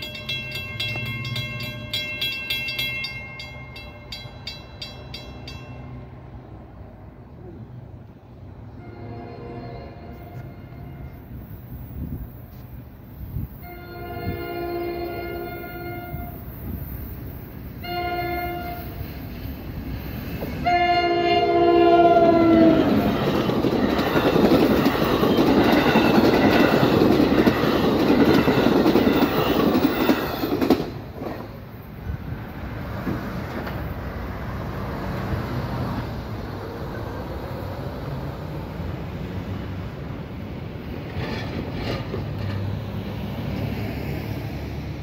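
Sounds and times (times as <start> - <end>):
train coaches clickety-clack: 0.0 - 6.7, 9.9 - 45.0
train horn blasts: 8.7 - 11.4, 13.6 - 16.5, 17.8 - 19.0, 20.6 - 23.3.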